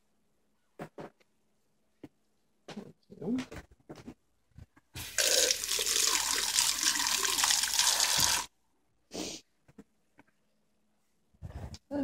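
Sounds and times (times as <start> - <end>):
water running: 5.0 - 8.5.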